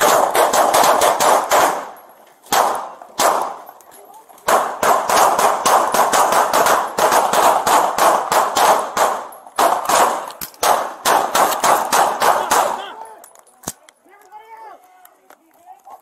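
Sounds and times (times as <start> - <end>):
rapid handgun fire: 0.0 - 3.6, 4.4 - 12.9.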